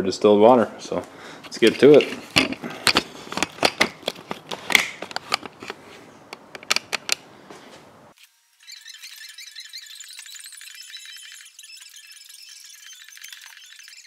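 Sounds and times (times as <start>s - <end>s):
camera handling clicks and knocks: 1.7s - 7.2s
thin high-pitched patterned sound: 8.6s - 14.0s.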